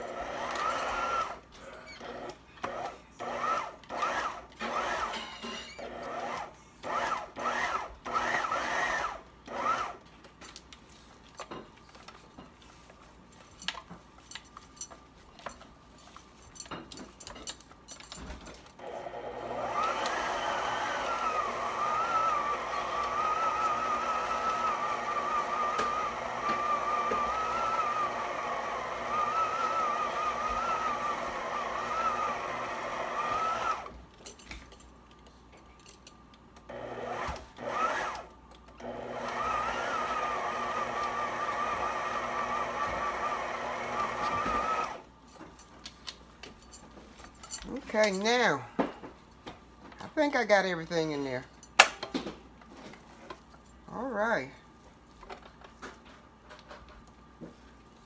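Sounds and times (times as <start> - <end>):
electric stand mixer whine: 0.0 - 1.4, 18.8 - 34.0, 36.7 - 45.1.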